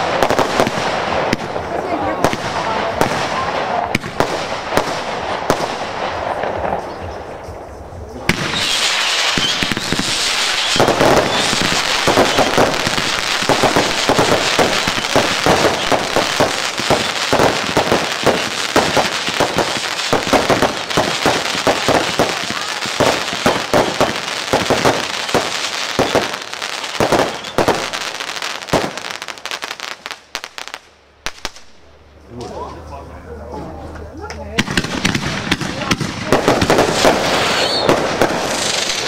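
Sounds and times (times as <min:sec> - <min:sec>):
fireworks crackling and banging: 0:00.0 - 0:32.8, 0:33.8 - 0:39.0.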